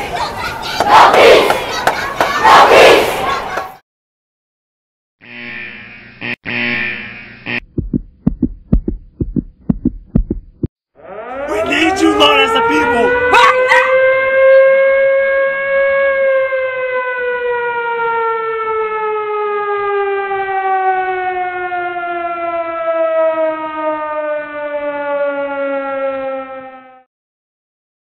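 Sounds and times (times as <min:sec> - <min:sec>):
air-raid siren wailing: 0:10.9 - 0:27.1.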